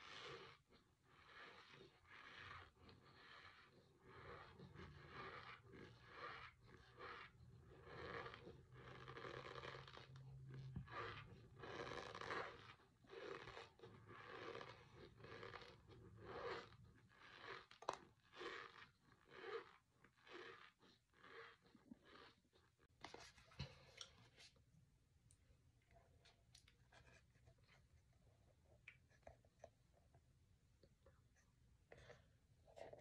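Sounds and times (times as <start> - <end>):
squeaky crunching of chewed powder: 0.0 - 22.9.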